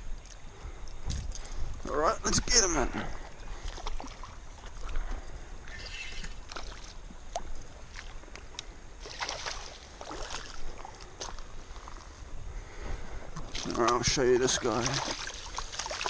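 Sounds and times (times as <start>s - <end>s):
water sloshing and splashing: 1.0s - 8.4s, 9.0s - 12.2s, 13.2s - 16.0s.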